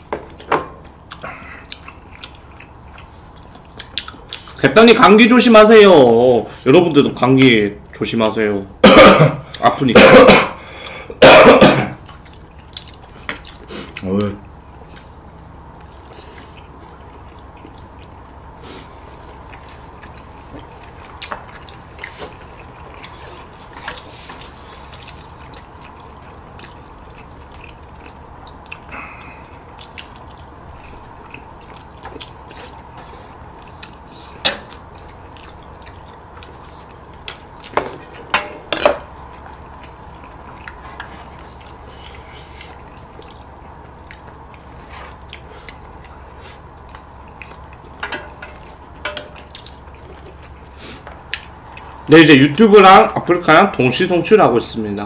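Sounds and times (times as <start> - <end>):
wet chewing and slurping: 0.3 - 4.6, 12.0 - 38.4, 39.0 - 52.1.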